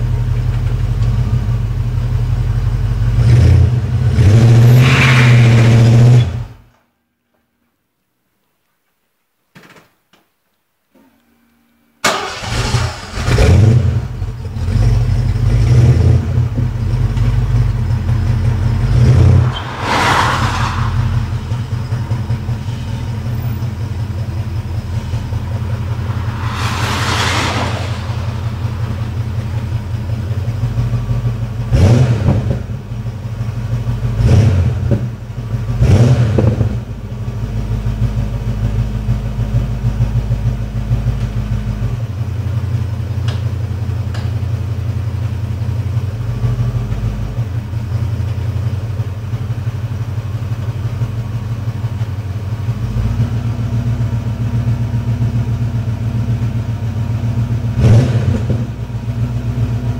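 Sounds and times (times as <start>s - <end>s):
car engine starting and rumbling: 12.0s - 44.2s.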